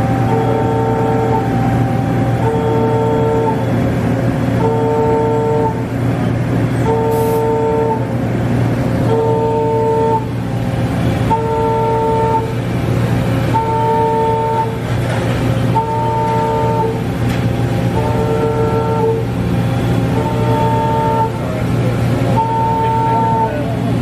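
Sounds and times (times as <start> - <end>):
two-pitch warning beeper: 0.0 - 3.8, 22.3 - 23.7
low machine hum: 0.0 - 24.0.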